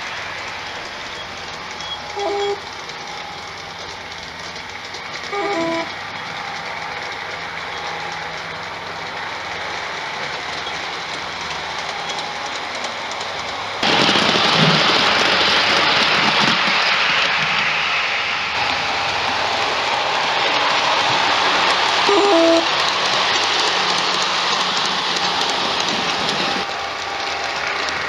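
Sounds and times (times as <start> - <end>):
model train rolling: 0.0 - 28.0.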